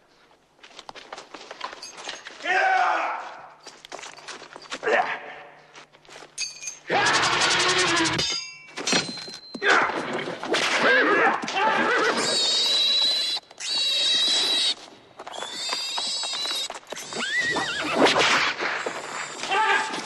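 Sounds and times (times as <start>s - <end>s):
horses whinnying: 6.9s - 8.3s, 9.6s - 18.3s.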